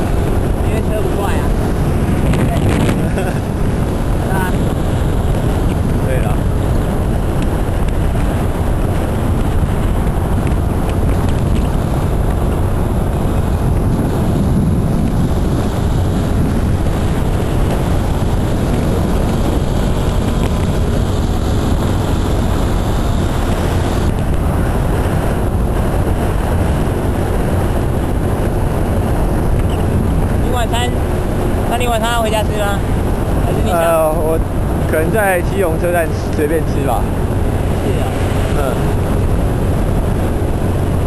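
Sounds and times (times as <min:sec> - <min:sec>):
motorcycle engine: 0:00.0 - 0:41.0
road noise: 0:00.0 - 0:41.0
wind buffeting microphone: 0:00.0 - 0:41.0.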